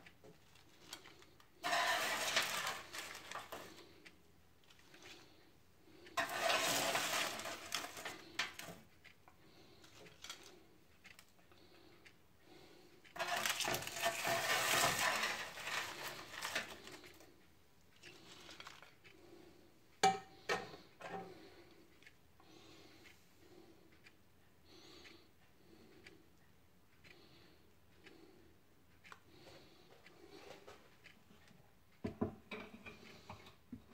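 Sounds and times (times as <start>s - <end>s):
plastic spoon scraping a tray: 1.6s - 3.8s, 6.2s - 8.8s, 13.2s - 17.2s.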